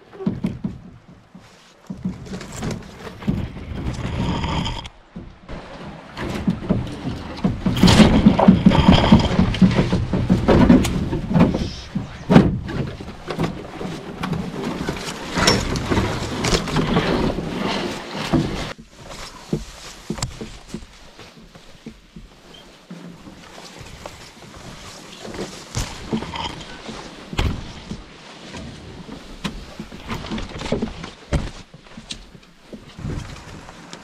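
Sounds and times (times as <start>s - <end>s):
paddle sloshing water: 0.0s - 34.0s
sharp knocks on canoe: 6.2s - 16.7s.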